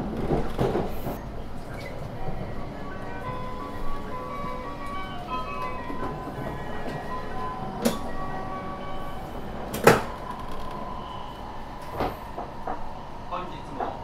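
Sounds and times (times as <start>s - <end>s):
train running with rumble: 0.0s - 14.0s.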